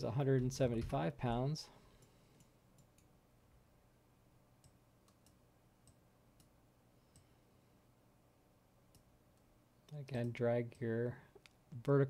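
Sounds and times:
faint mouse clicks: 0:01.9 - 0:03.1, 0:04.6 - 0:07.4, 0:08.9 - 0:11.9.

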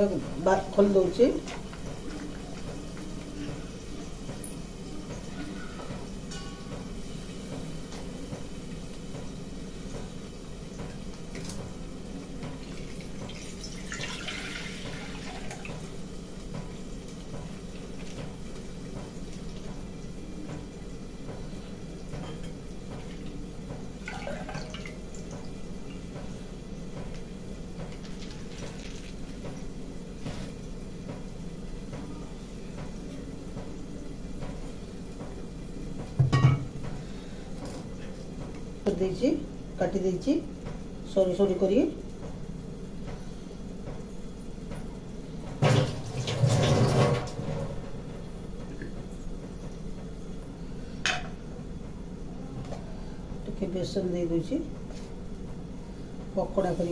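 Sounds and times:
low background hum: 0:00.0 - 0:56.9
liquid pouring into a pot: 0:12.6 - 0:16.0, 0:23.2 - 0:26.1
pot thumping: 0:36.1 - 0:37.0.

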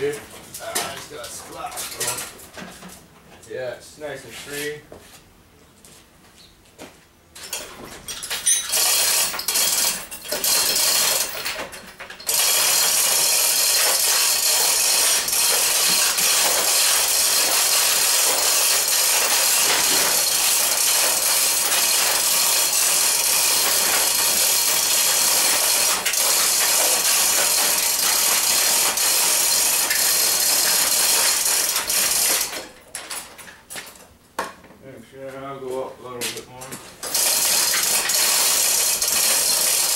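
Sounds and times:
chain hoist rattling: 0:00.6 - 0:02.4, 0:07.4 - 0:33.6, 0:37.0 - 0:39.9.

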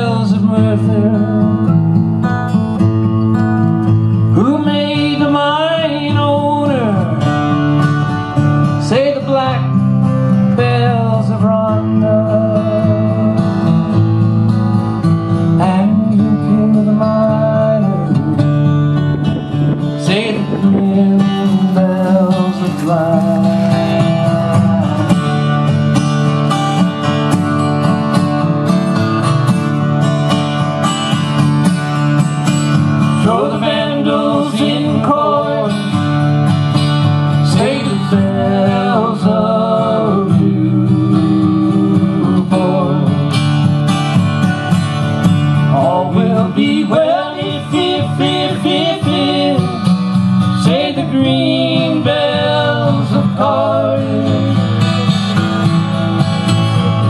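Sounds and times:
acoustic guitars strumming: 0:00.0 - 0:57.0
men singing together: 0:20.0 - 0:25.4, 0:33.2 - 0:36.0, 0:37.4 - 0:43.1, 0:45.7 - 0:55.1.

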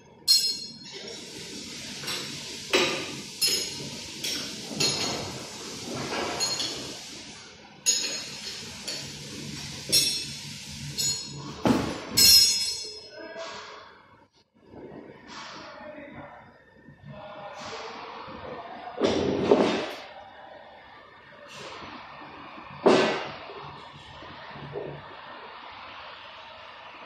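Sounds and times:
metal hand tools clanking: 0:12.2 - 0:13.1.

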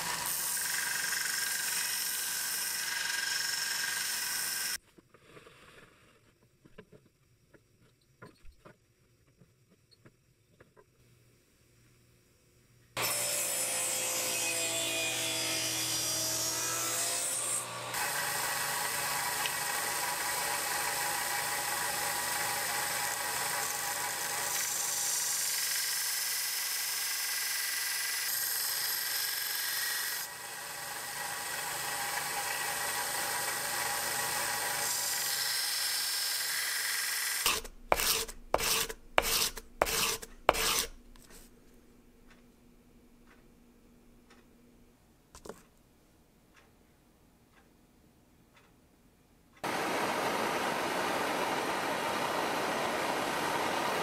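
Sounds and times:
belt sander grinding steel: 0:37.0 - 0:41.1
blade honed on abrasive sheet: 0:37.3 - 0:41.6.

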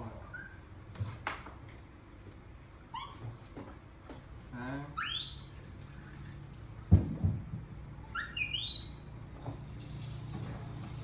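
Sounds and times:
monkey squealing: 0:00.2 - 0:00.6, 0:02.9 - 0:03.2, 0:05.0 - 0:05.8, 0:08.0 - 0:09.1
dull thumps: 0:06.9 - 0:07.7.

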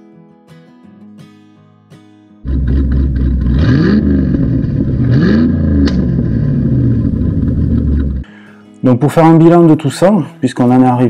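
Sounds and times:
acoustic guitar music: 0:00.0 - 0:11.0
car engine starting and revving: 0:02.4 - 0:08.2
sharp click: 0:05.8 - 0:06.1.

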